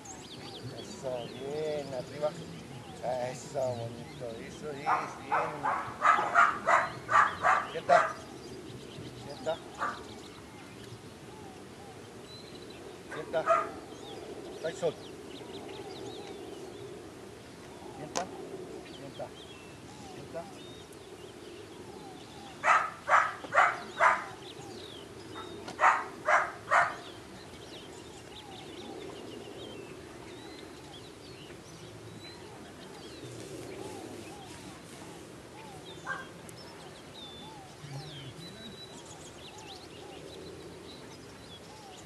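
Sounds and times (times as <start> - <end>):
small birds chirping: 0.0 - 42.0
animal calling: 4.6 - 8.4, 9.2 - 12.0, 13.0 - 14.1, 21.8 - 27.3.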